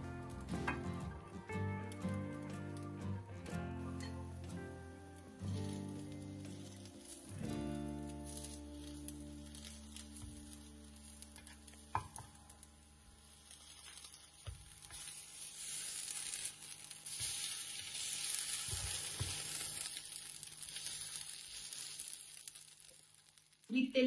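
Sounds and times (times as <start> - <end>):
fritter sizzling in oil: 5.1 - 23.7.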